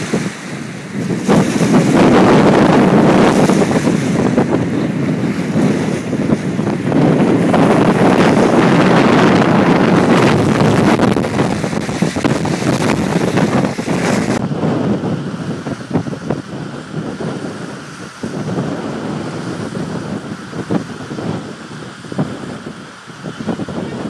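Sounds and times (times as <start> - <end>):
choppy waves washing: 0.0 - 24.0
gusting wind on microphone: 0.0 - 24.0.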